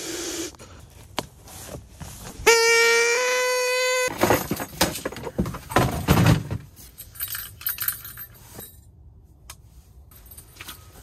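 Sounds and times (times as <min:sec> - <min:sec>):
plastic tub and scoop clattering: 0:04.1 - 0:06.7.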